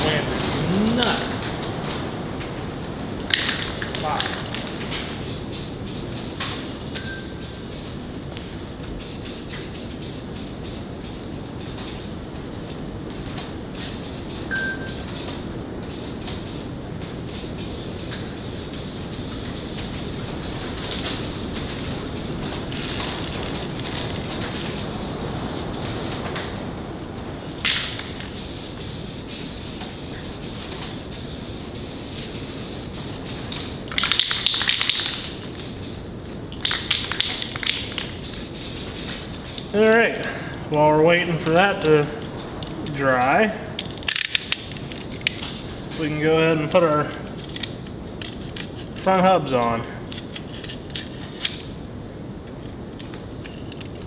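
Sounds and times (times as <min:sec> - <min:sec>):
wind rumbling on metal barn: 0:00.0 - 0:05.2, 0:19.5 - 0:28.3
spray paint can hissing: 0:04.6 - 0:08.2, 0:09.0 - 0:12.2, 0:13.7 - 0:16.7, 0:17.3 - 0:26.3, 0:28.2 - 0:36.0, 0:36.6 - 0:39.9, 0:53.4 - 0:53.9.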